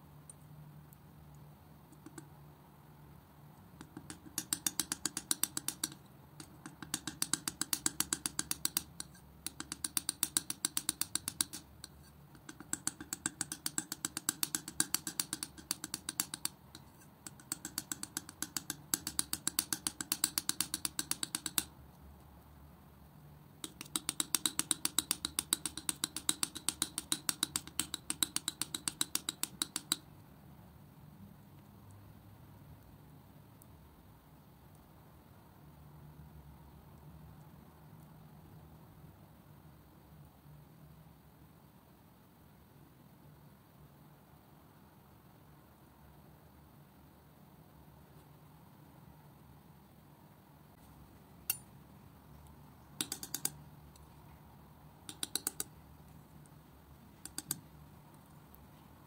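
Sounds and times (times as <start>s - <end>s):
palette knife clicking in paint: 1.3s - 2.4s, 3.8s - 21.8s, 23.6s - 30.1s, 53.0s - 54.1s, 55.0s - 55.8s, 57.2s - 57.7s.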